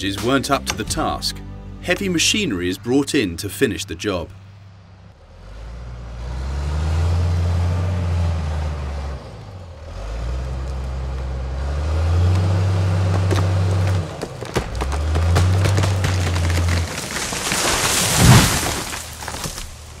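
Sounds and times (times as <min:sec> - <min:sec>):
diesel engine revving under load: 0:04.7 - 0:19.1
tree trunk cracking: 0:12.2 - 0:20.0.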